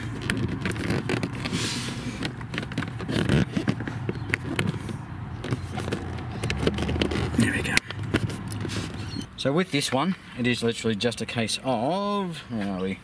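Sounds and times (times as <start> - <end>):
plastic creaking and clicking: 0.0 - 9.3
plastic scrape: 0.0 - 9.3.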